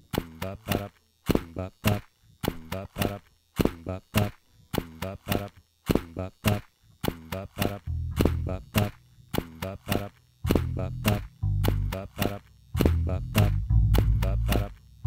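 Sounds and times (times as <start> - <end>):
amplifier hum: 0.0 - 15.0
electric guitar plucked notes: 7.9 - 8.9, 9.8 - 14.8.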